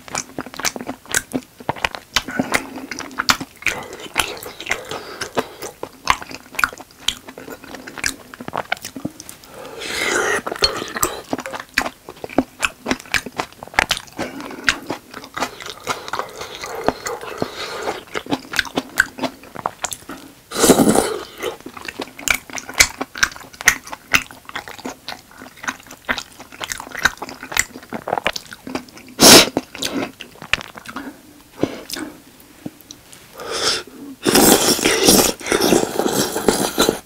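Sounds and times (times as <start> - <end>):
clicky mouth sounds: 0.0 - 9.4
wet chewing and mouth smacking: 0.0 - 33.0
loud slurp: 34.2 - 37.0.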